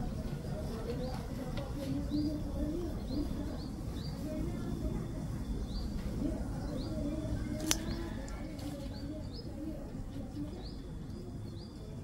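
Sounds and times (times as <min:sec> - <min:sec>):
small bird chirping: 0:01.9 - 0:09.6.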